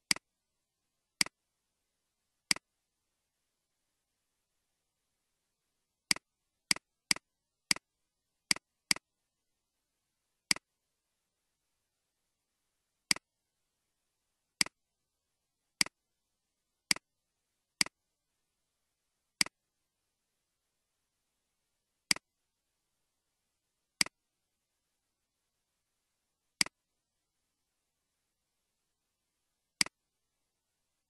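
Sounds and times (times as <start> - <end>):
computer mouse clicks: 0.0 - 0.2, 2.5 - 2.7, 6.1 - 7.9, 8.5 - 9.0, 10.5 - 10.7, 13.1 - 13.3, 14.6 - 14.8, 16.9 - 17.1, 19.4 - 19.6, 22.1 - 22.3, 26.6 - 26.8, 29.8 - 30.0.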